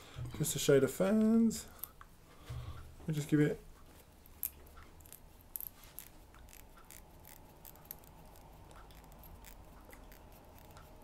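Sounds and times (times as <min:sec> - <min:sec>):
low steady hum: 0:00.0 - 0:11.0
wire winding clicks and scratches: 0:04.2 - 0:11.0.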